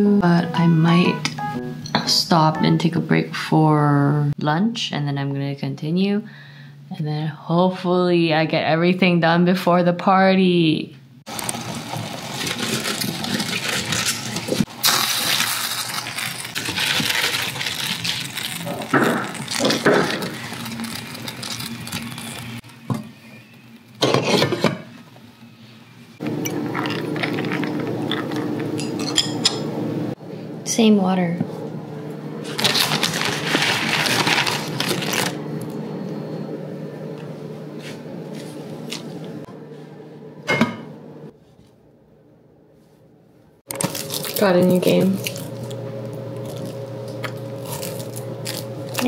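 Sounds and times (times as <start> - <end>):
low steady hum: 0.0 - 10.7
plastic bag crinkling: 11.3 - 22.8, 32.4 - 35.4, 43.7 - 49.0.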